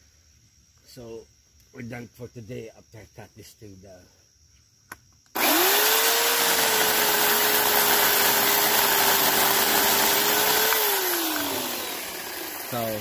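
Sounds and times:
electric chainsaw sawing branch: 0:05.3 - 0:13.0.

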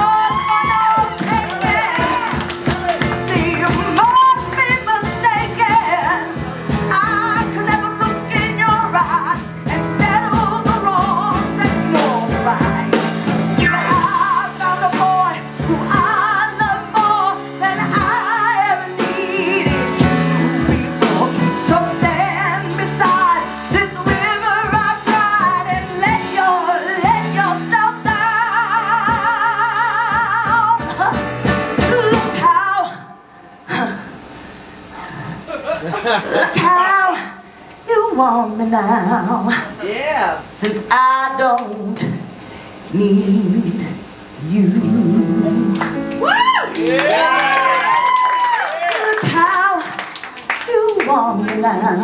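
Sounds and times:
live band playing: 0:00.0 - 0:33.5, 0:44.0 - 0:52.0
woman singing with vibrato: 0:00.0 - 0:34.2, 0:36.4 - 0:52.0.

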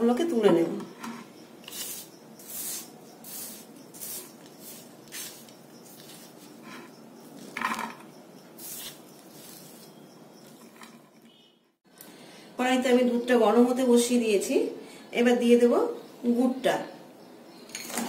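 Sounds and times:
dough pieces rustling and scraping: 0:03.4 - 0:08.0.

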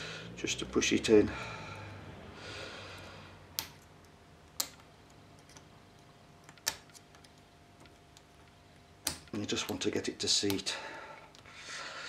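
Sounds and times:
small metallic clicks: 0:03.5 - 0:10.7.

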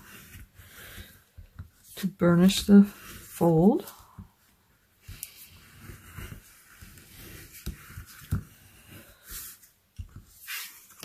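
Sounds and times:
bone folder rubbing paper: 0:05.0 - 0:09.7.

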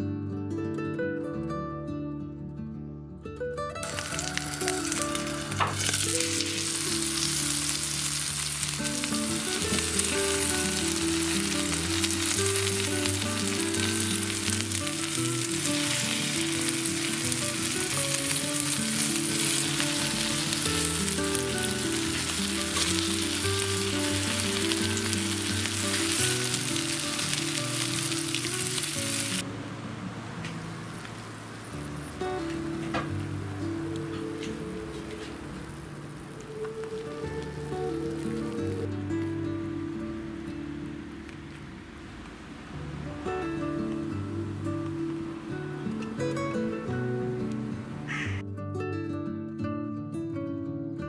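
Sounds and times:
soft background music: 0:03.7 - 0:42.0, 0:42.7 - 0:49.5
vegetables sizzling in hot oil: 0:03.8 - 0:29.4, 0:35.4 - 0:38.9.

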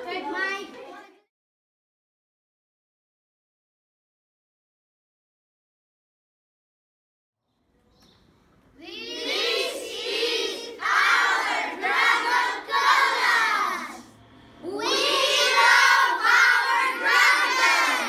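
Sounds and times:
children calling out in unison: 0:08.8 - 0:18.0.

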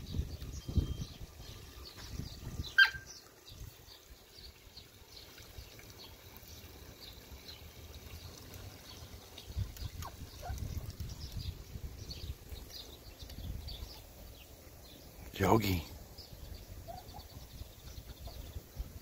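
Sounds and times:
faint bird chirps: 0:00.0 - 0:04.4, 0:09.5 - 0:18.9
water trickling into a puddle: 0:00.0 - 0:19.0.

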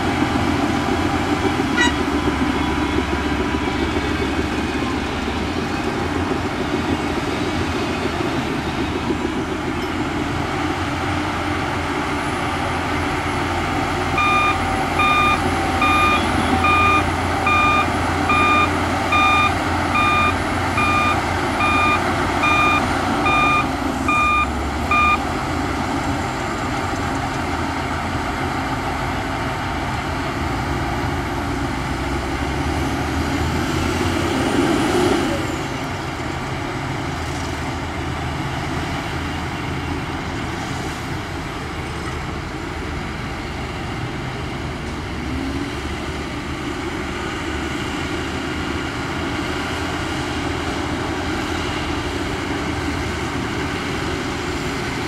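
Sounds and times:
heavy diesel engines running: 0:00.0 - 0:55.0
reversing alarm beeping: 0:14.1 - 0:25.2.

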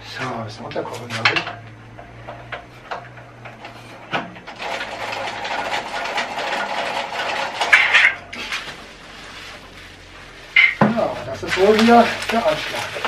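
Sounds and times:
plastic packaging crinkling: 0:04.6 - 0:13.0.

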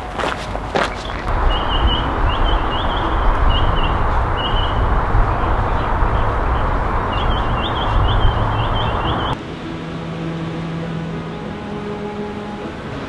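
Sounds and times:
distant traffic rumble: 0:00.0 - 0:09.4
bird chirping: 0:00.7 - 0:09.4.

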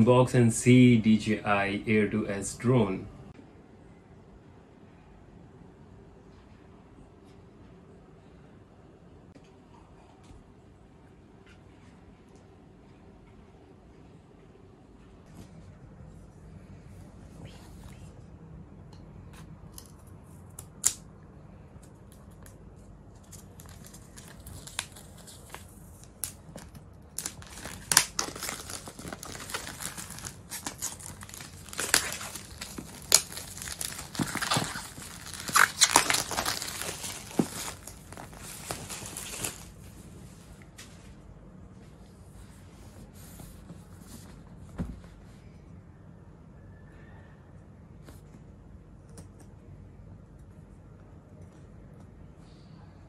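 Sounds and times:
plastic shrink wrap tearing: 0:23.2 - 0:39.8.

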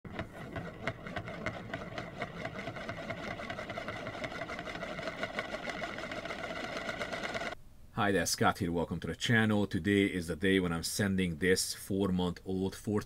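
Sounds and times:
disc spinning on wooden table: 0:00.1 - 0:07.6.

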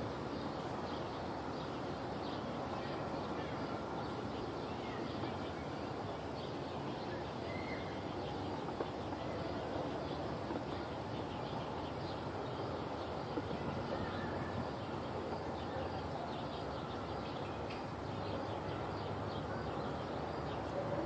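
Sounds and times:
faint bird chirps: 0:06.8 - 0:08.6.

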